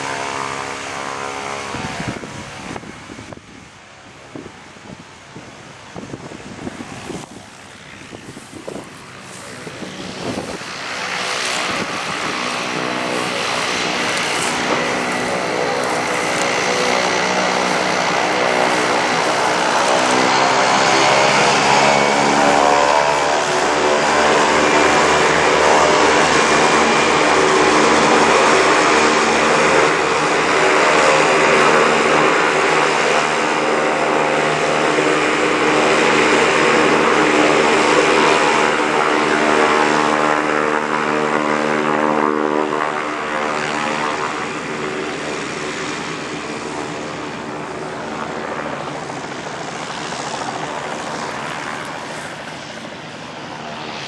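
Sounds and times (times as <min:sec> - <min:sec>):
propeller plane engine droning: 0:00.0 - 0:54.0.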